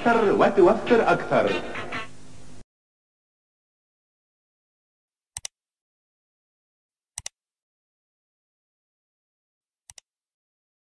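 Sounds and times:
mouse double click: 7.2 - 7.4, 9.9 - 10.1.

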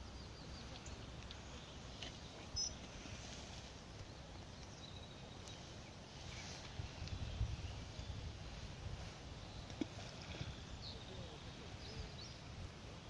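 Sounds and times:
high bird chirps: 2.5 - 2.8
wind on microphone: 6.1 - 13.0.

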